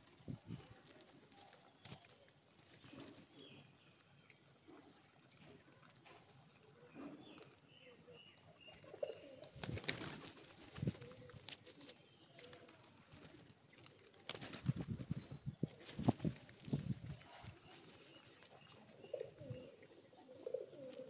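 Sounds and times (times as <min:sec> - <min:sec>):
pigeons cooing: 0:06.8 - 0:21.0
wings flapping: 0:09.6 - 0:13.4, 0:14.3 - 0:15.2.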